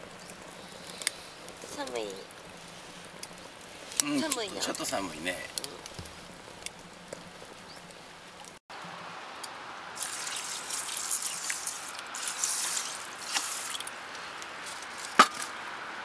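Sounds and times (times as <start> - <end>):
water pouring into metal pot: 10.0 - 13.9.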